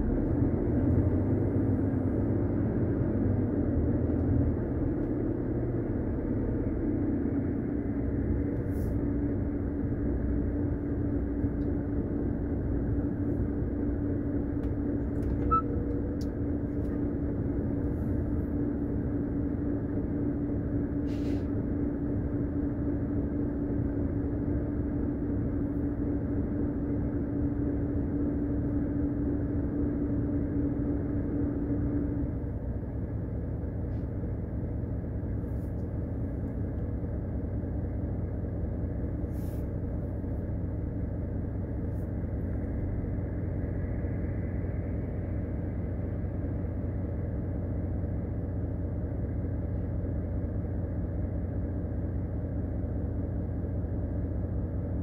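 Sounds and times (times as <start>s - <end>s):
diesel engine idling: 0.0s - 55.0s
steady hum: 7.1s - 55.0s.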